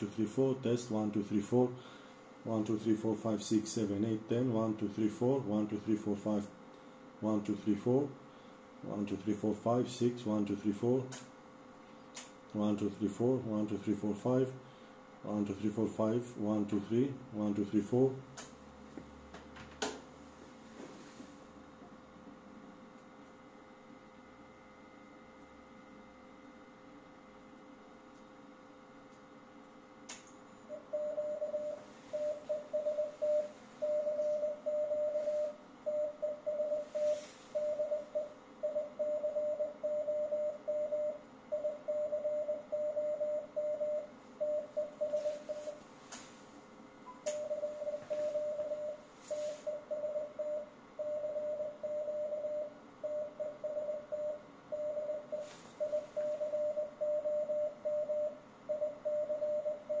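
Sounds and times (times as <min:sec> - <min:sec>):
morse code tone: 0:30.7 - 0:45.8, 0:47.1 - 1:00.0.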